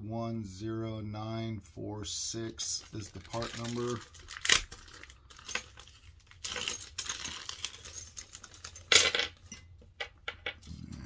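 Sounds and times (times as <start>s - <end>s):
small parts clicking and clinking: 3.2s - 10.6s.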